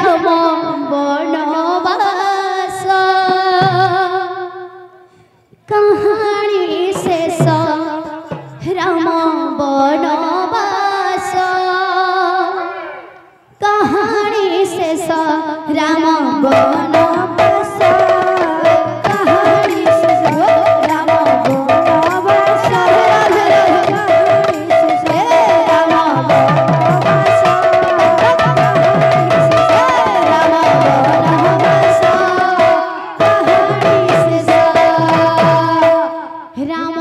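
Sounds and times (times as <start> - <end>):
person singing melodic lines: 5.7 - 37.0
drum strokes: 16.4 - 36.4.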